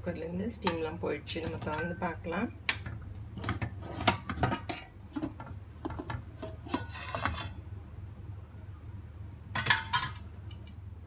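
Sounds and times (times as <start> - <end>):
metal lid scraping on metal: 3.4 - 5.4, 6.0 - 7.6.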